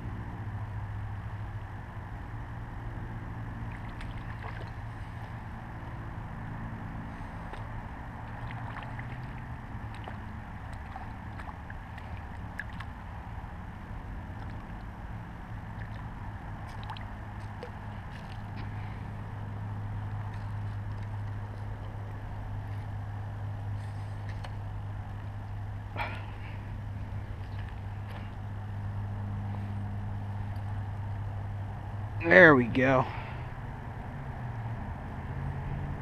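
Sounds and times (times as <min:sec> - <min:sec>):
low motor hum: 0:00.0 - 0:36.0
fish splashing at water surface: 0:03.6 - 0:05.5, 0:07.1 - 0:13.1, 0:14.2 - 0:15.0, 0:15.6 - 0:19.2.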